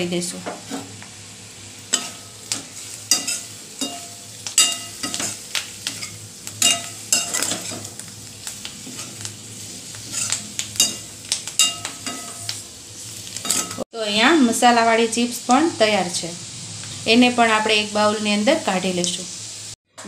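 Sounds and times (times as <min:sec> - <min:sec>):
frying sizzle: 0:00.0 - 0:19.8
metal spatula scraping steel pan: 0:10.0 - 0:11.0.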